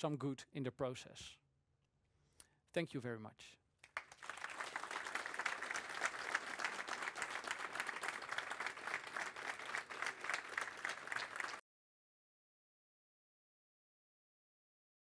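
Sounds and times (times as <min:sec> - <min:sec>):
audience applauding: 0:03.8 - 0:11.6.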